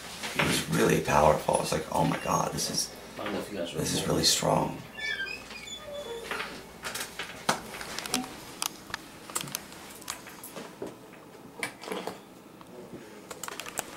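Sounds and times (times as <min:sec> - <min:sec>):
keyboard and mouse clicking: 0:13.3 - 0:13.9.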